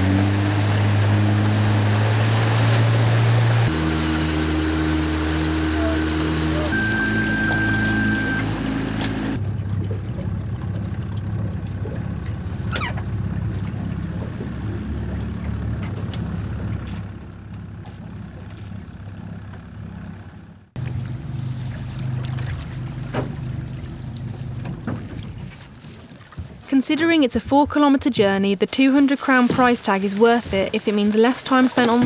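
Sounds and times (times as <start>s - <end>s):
hull hissing on water: 0.0s - 9.4s
motorboat engine humming: 0.0s - 32.0s.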